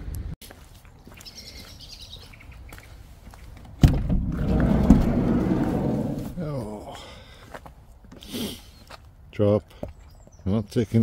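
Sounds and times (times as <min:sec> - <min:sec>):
sliding door rumbling scrape: 0:04.2 - 0:06.4.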